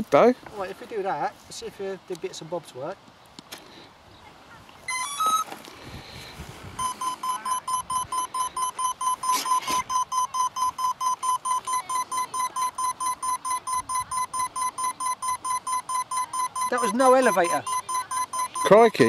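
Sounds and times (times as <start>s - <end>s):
short high electronic beeps: 4.9s - 5.4s, 6.8s - 19.0s.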